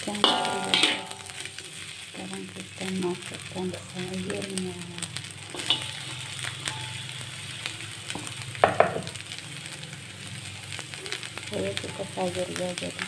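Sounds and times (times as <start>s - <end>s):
rice sizzling in a wok: 0.0s - 13.0s
metal spatula scraping a wok: 0.2s - 1.8s, 5.2s - 8.4s.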